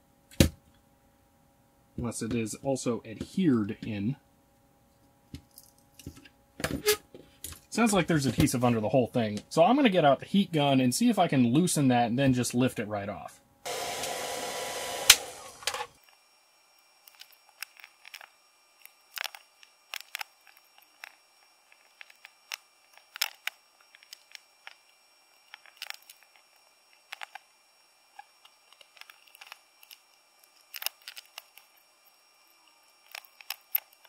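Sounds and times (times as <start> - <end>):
heat gun blowing: 13.7 - 15.9.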